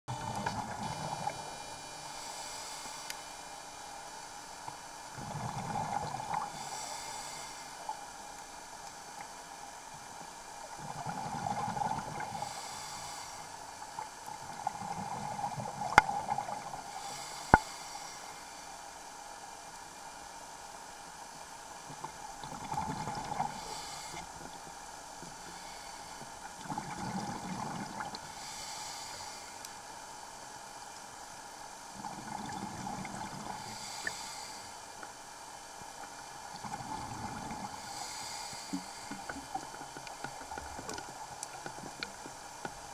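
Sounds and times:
regulator breathing hiss: 0:00.8 - 0:03.7, 0:06.5 - 0:07.9, 0:12.3 - 0:13.8, 0:16.8 - 0:18.8, 0:23.5 - 0:24.3, 0:25.4 - 0:26.3, 0:28.3 - 0:29.8, 0:33.5 - 0:35.0, 0:37.7 - 0:39.6
exhaled air bubbling: 0:05.1 - 0:07.1, 0:10.7 - 0:12.6, 0:14.3 - 0:17.7, 0:22.0 - 0:24.6, 0:25.3 - 0:28.5, 0:31.9 - 0:34.2, 0:36.5 - 0:42.4.

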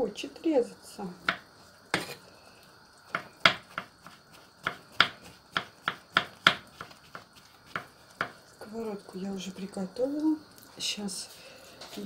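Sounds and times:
knife knocking on cutting board: 0:03.1 - 0:03.9.

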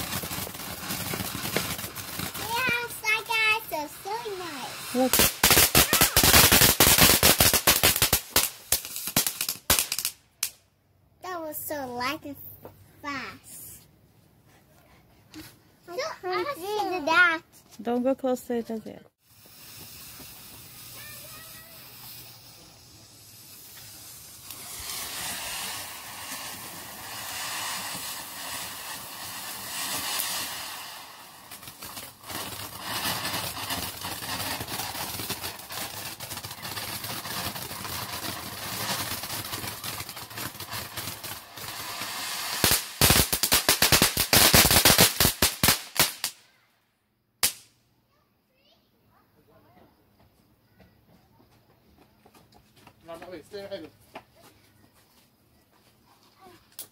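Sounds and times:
firework fountain hissing: 0:00.0 - 0:10.5, 0:11.2 - 0:12.4, 0:13.0 - 0:13.8, 0:15.9 - 0:17.4, 0:19.2 - 0:46.4
loud firework cracks: 0:00.0 - 0:10.6, 0:19.2 - 0:46.7, 0:47.4 - 0:47.8
firework crackling: 0:00.0 - 0:13.8, 0:15.9 - 0:17.4, 0:19.2 - 0:46.6, 0:47.4 - 0:47.8, 0:53.0 - 0:53.9.

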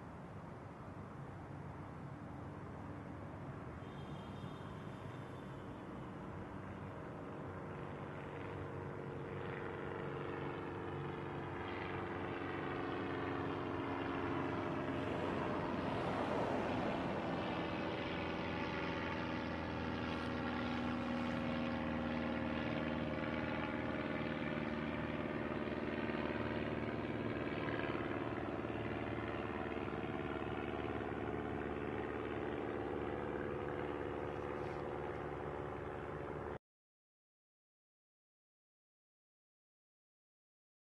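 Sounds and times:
drone of held tones: 0:03.8 - 0:06.2.

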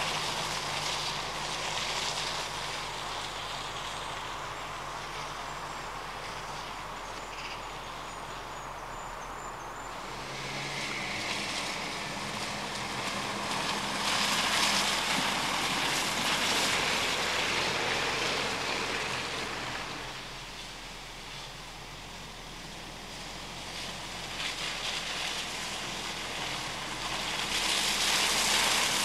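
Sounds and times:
tyres on muddy grass: 0:00.0 - 0:29.0
car engine driving past: 0:09.4 - 0:20.5.

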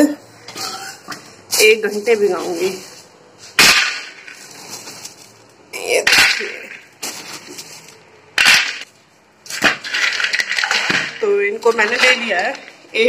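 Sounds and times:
plastic bag rustling: 0:01.2 - 0:05.7, 0:06.3 - 0:13.0
dry chunks rattling in steel bowl: 0:09.5 - 0:13.0.

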